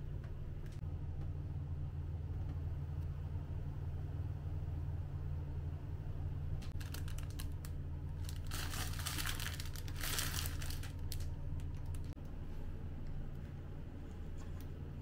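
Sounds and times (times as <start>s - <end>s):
steady low hum: 0.0s - 15.0s
plastic wrapping crinkling: 6.7s - 12.1s.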